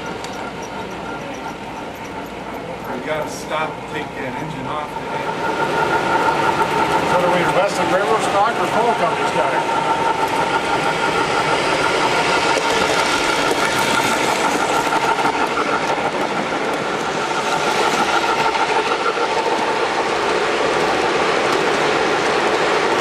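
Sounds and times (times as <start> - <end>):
model train wheels clattering over rails: 0.0 - 23.0.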